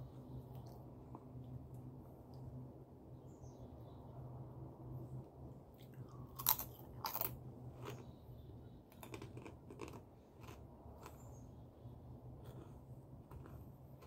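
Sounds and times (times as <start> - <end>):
crunchy chewing: 5.8 - 8.2, 8.9 - 11.6, 12.3 - 14.0.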